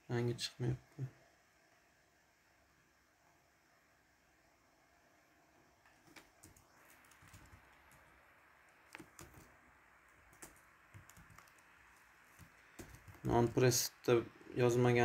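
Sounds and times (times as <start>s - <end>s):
typing on keyboard: 5.9s - 8.1s, 8.9s - 9.5s, 10.1s - 13.5s.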